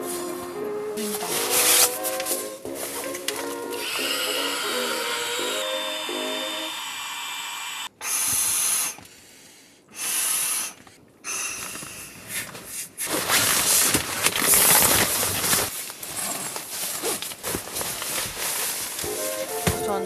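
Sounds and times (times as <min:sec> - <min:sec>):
nylon fabric rustling: 0:00.0 - 0:03.6, 0:13.0 - 0:20.0
breath blown into valve: 0:03.7 - 0:09.2, 0:09.9 - 0:12.5.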